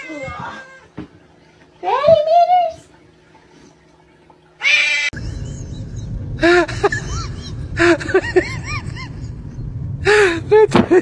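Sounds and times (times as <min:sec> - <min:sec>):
cat yowling: 0:00.0 - 0:00.9, 0:04.6 - 0:05.2
cats crying: 0:00.0 - 0:01.0, 0:04.6 - 0:05.4
cats hissing: 0:04.6 - 0:05.2.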